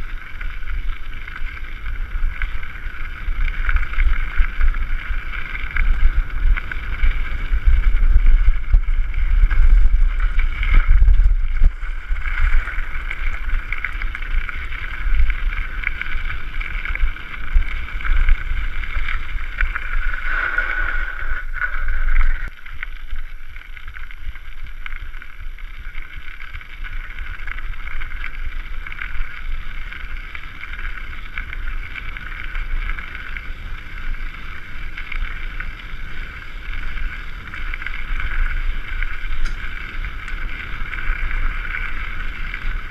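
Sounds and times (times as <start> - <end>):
wind buffeting microphone: 0.0 - 22.5
bike rolling on gravel: 0.0 - 42.9.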